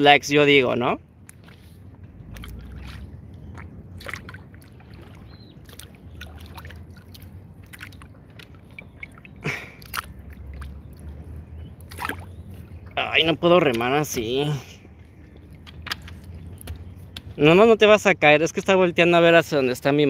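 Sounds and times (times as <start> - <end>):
low steady rumble: 0.0 - 20.0
paddle in water: 0.5 - 17.5
scrapes and clicks against hull: 15.5 - 17.3.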